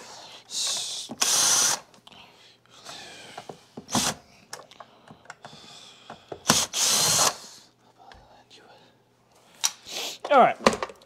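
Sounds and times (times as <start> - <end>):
cordless drill running in bursts: 6.5 - 7.4.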